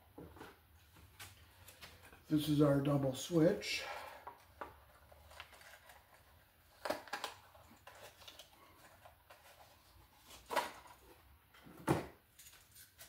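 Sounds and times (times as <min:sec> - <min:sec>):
packaging rustling: 0:04.4 - 0:11.3.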